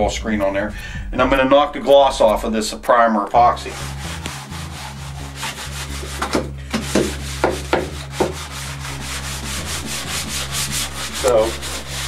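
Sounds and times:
hand sanding back and forth: 3.6 - 12.0.

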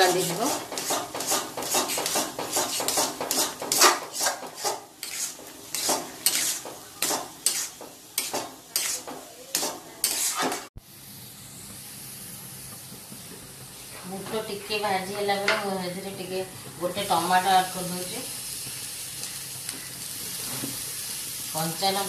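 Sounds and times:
steel spoon scraping a pan: 0.0 - 10.7
chickpeas roasting hiss: 0.0 - 22.0.

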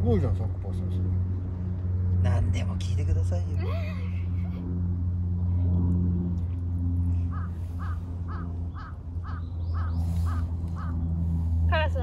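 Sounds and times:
steady low hum: 0.0 - 12.0
crow cawing: 7.3 - 11.0.

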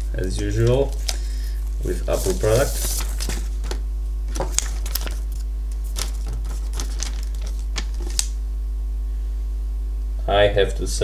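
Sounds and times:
low electrical hum: 0.0 - 11.0
hands handling cardboard box: 1.8 - 3.8.

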